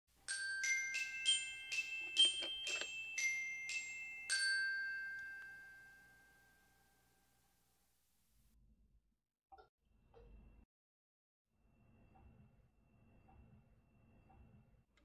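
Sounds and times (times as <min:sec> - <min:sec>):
glockenspiel-like bell jingle: 0:00.2 - 0:07.4.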